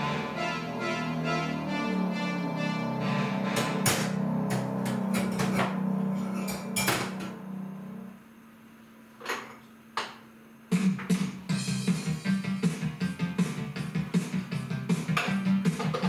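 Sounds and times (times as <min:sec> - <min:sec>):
rhythmic music: 0:00.0 - 0:05.9, 0:10.7 - 0:16.0
background music: 0:00.0 - 0:06.1, 0:10.7 - 0:16.0.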